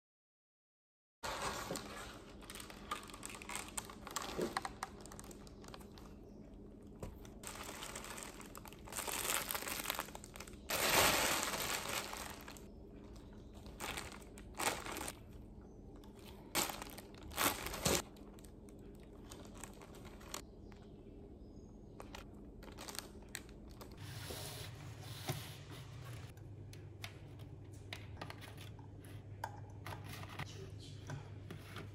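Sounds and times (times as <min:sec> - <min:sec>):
plastic bags crinkling: 0:01.3 - 0:06.2, 0:06.8 - 0:15.4, 0:16.1 - 0:20.4, 0:22.0 - 0:24.0.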